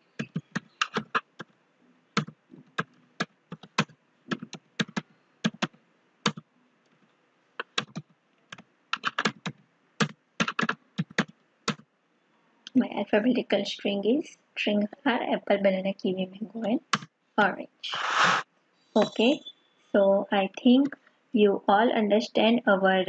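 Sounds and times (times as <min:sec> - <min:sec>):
keyboard typing: 0:00.0 - 0:01.6, 0:02.2 - 0:06.5, 0:07.6 - 0:11.8, 0:16.6 - 0:17.1.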